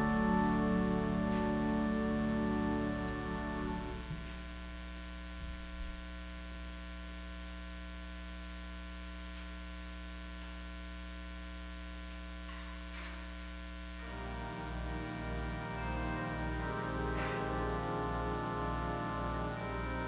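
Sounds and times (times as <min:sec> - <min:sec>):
music: 0:00.0 - 0:04.4, 0:14.0 - 0:20.0
electrical mains hum: 0:00.0 - 0:20.0.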